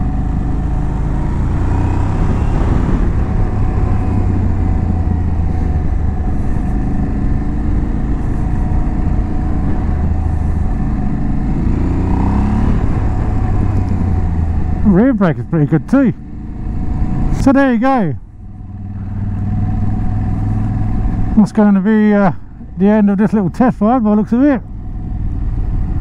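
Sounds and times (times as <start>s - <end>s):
wind rushing: 0.0s - 14.9s
motorcycle engine running: 0.0s - 26.0s.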